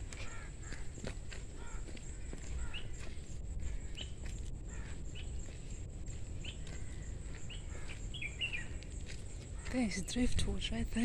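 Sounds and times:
low steady rumble: 0.0s - 9.6s
bird chirping: 1.6s - 5.8s, 6.4s - 10.7s.

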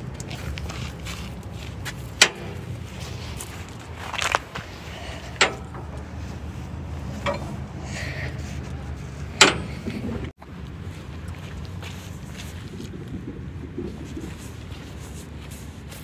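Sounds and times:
steady low rumble: 0.0s - 16.0s
sharp clicks and knocks: 1.9s - 7.8s, 9.2s - 10.3s.

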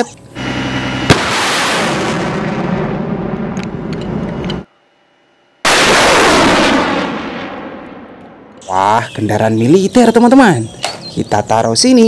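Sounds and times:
rocket launch roar: 0.4s - 4.6s, 5.6s - 8.5s
sharp crack: 1.0s - 4.6s, 5.7s - 8.7s.

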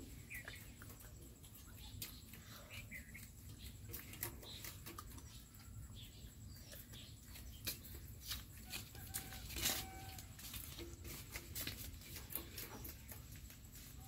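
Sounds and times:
low steady background noise: 0.0s - 14.0s
rabbits chewing greens: 0.0s - 14.0s
leaves being pulled: 7.4s - 14.0s.

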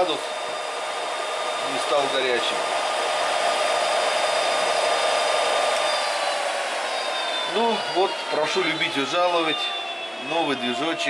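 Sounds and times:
electric motor whining: 0.0s - 11.0s.

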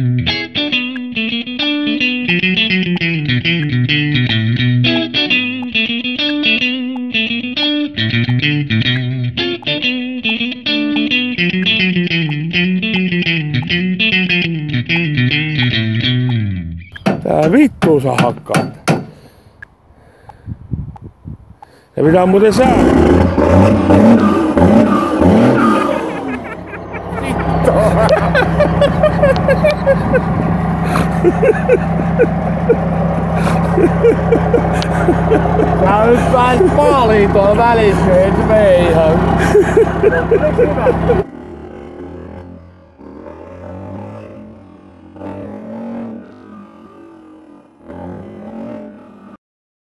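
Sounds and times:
rock music with electric guitar: 0.0s - 17.0s, 23.1s - 41.3s
pickup truck engine idling: 24.2s - 43.0s.

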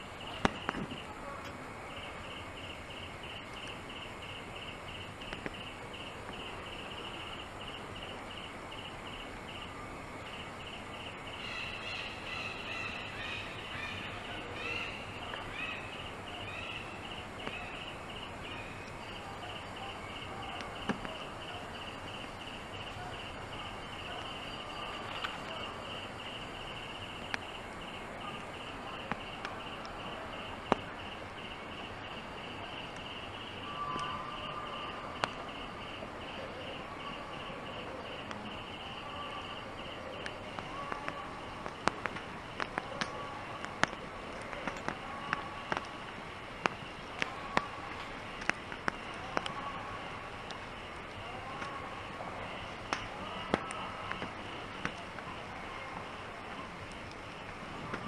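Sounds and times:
pulsing insect chirr: 0.0s - 57.8s
sharp clicks: 5.2s - 5.7s, 35.2s - 35.6s, 39.5s - 46.0s, 46.6s - 49.7s.

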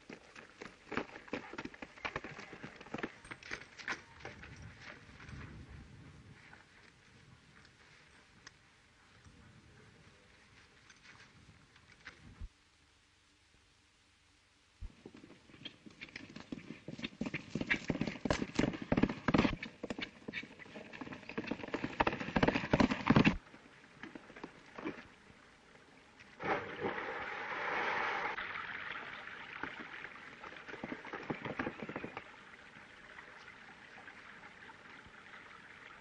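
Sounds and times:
horse hoofbeats galloping: 0.0s - 5.6s, 14.9s - 23.4s, 29.6s - 32.5s.

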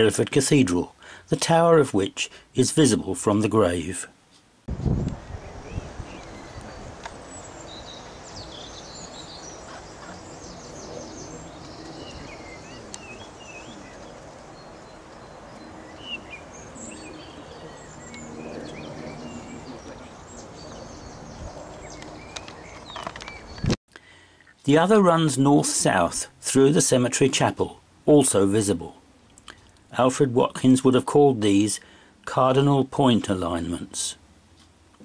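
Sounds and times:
outdoor background noise: 0.0s - 35.0s
small birds chirping: 4.8s - 24.6s.

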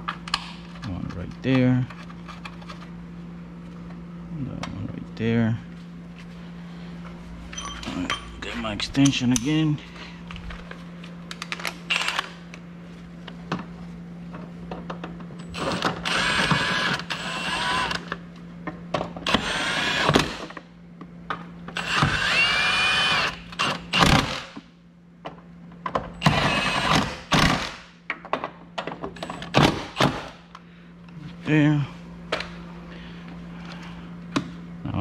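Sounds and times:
cordless power tool whirring: 11.9s - 12.4s, 15.6s - 18.1s, 19.2s - 20.5s, 21.8s - 24.6s, 26.2s - 27.1s.

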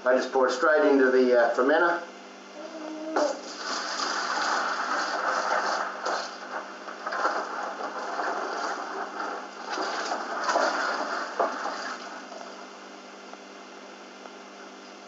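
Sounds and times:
liquid pouring into bucket: 3.4s - 12.6s.

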